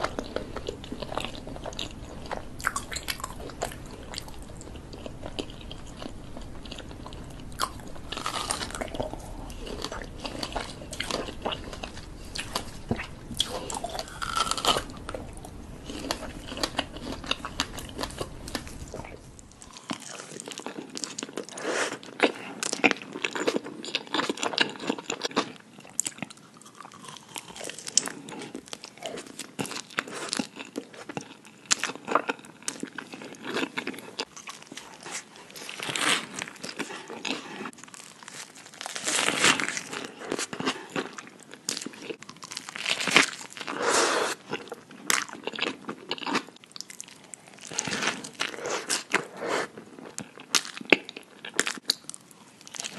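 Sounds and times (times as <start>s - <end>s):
low background rumble: 0.0s - 20.4s.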